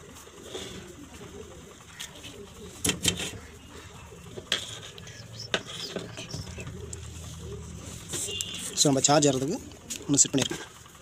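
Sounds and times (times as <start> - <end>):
bird cooing: 0.0 - 10.7.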